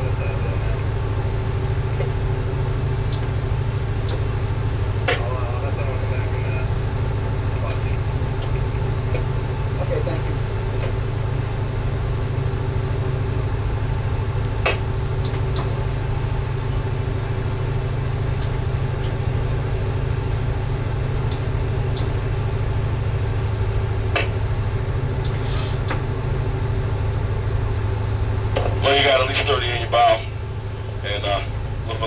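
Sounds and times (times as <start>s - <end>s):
diesel engines humming: 0.0s - 32.0s
sharp clicks: 14.4s - 15.7s
short hiss: 25.4s - 25.9s.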